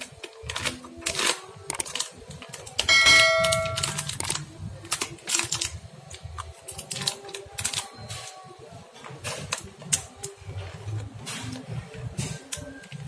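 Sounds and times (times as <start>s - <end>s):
notification ding: 2.9s - 4.0s.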